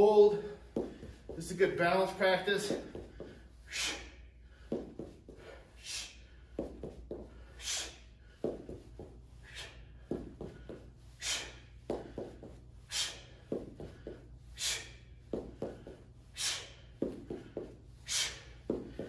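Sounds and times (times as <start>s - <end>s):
man's sharp exhalations: 2.7s - 4.7s.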